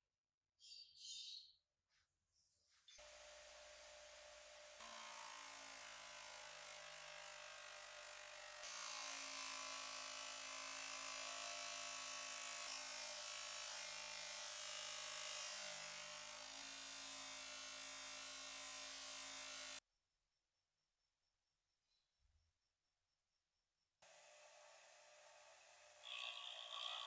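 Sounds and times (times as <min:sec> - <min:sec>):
bench grinder buffing wheel buzzing: 0:03.0 - 0:19.8, 0:24.0 - 0:27.0.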